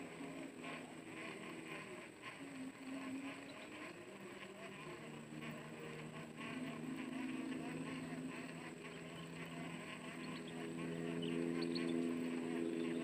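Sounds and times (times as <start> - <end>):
distant engine drone: 0.0 - 13.0
faint chirps: 0.0 - 13.0.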